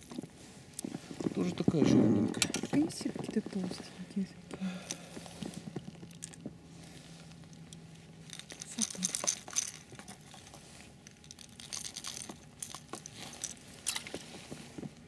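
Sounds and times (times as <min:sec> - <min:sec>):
rustling jacket and gloves: 0:00.0 - 0:15.0
metal hooks clicking and clinking: 0:07.4 - 0:14.2.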